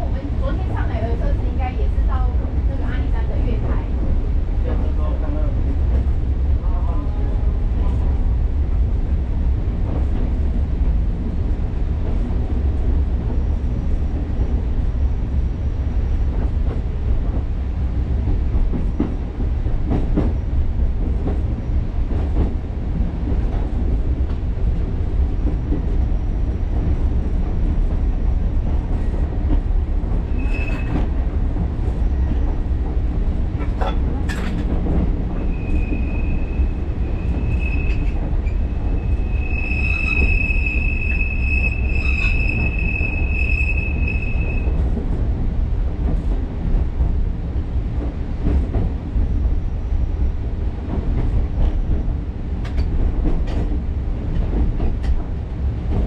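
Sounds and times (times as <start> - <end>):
train running with low rumble: 0.0 - 56.0
high wheel squeal: 30.3 - 31.0, 35.5 - 44.8.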